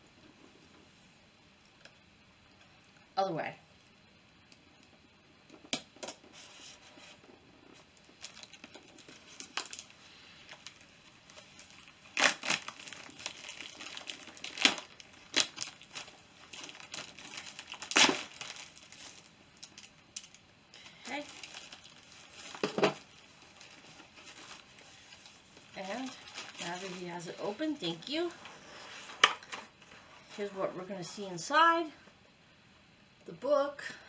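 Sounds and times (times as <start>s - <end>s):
packaging rustling and tearing: 6.0s - 30.4s.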